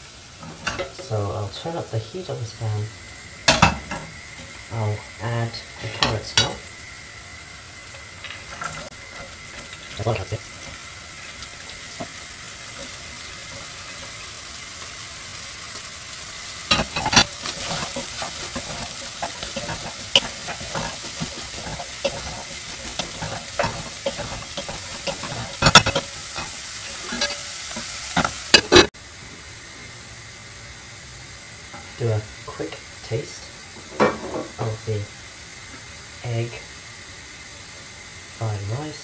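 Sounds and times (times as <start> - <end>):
food sizzling in a saucepan: 0.0 - 39.0
wooden spatula scraping a pan: 16.7 - 28.9.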